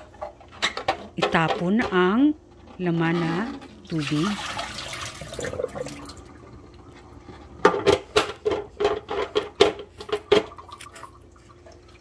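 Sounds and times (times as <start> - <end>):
water pouring into steel sink: 3.9 - 6.6.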